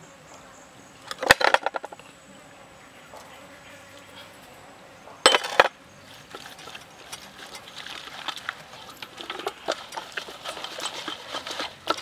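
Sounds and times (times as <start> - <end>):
high insect drone: 0.0 - 10.0
metal tray rattling: 6.3 - 12.0.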